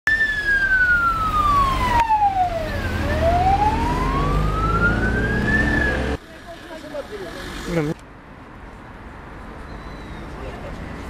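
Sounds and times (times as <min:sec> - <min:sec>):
ambulance siren wailing: 0:00.1 - 0:06.2
vehicle engine rumble: 0:00.1 - 0:11.0.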